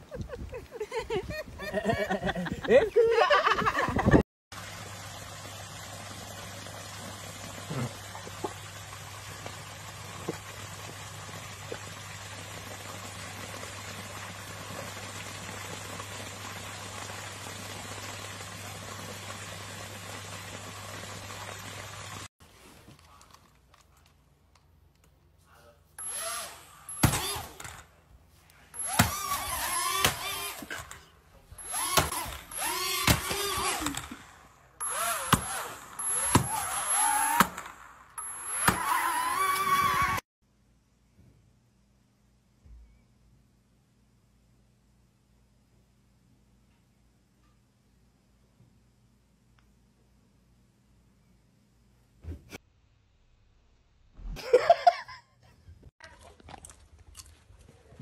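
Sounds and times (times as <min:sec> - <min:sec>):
pond water rushing: 0:04.5 - 0:22.3, 0:31.6 - 0:40.2.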